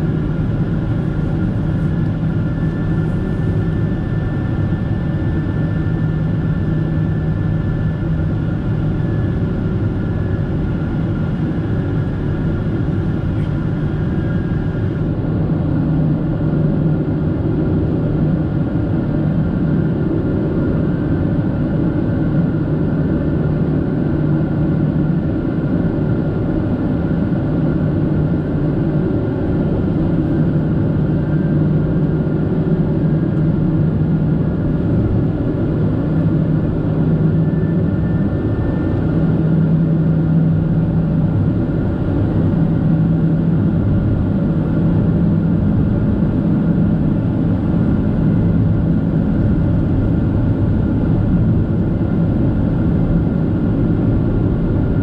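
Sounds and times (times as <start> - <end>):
steady hums: 0.0 - 17.8
airplane cabin roar: 0.0 - 55.0.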